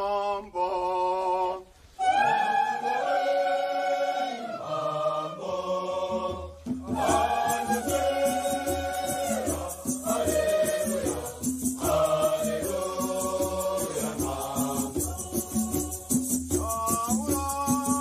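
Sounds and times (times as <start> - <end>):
choir singing in harmony: 0.0 - 16.6
hand rattles shaking: 7.5 - 18.0.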